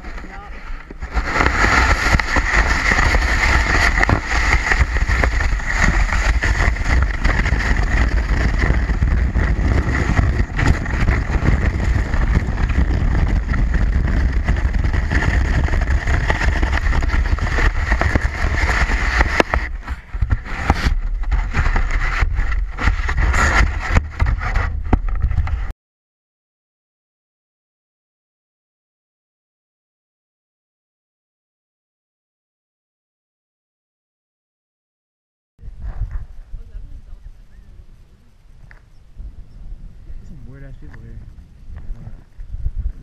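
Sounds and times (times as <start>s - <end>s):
sled scuffs and knocks: 0.0s - 25.7s
sled sliding over snow: 0.0s - 25.7s
wind rumbling on microphone: 0.0s - 25.7s, 35.6s - 43.0s.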